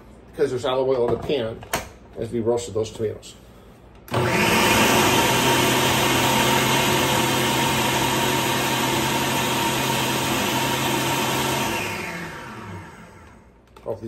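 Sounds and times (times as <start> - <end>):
food processor chopping: 4.1 - 13.4.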